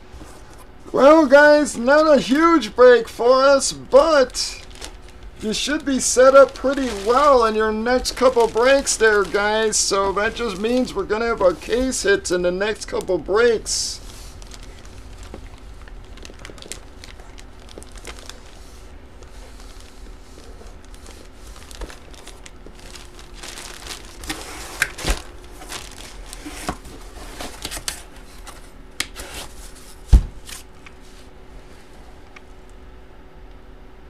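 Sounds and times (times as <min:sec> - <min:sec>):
plastic packaging crinkling: 0:03.9 - 0:31.1.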